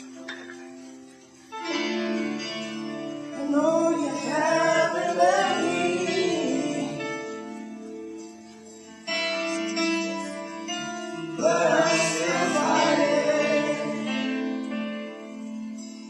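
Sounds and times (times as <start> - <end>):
sustained chords: 1.6 - 16.0
person singing: 3.3 - 7.7, 9.4 - 15.2.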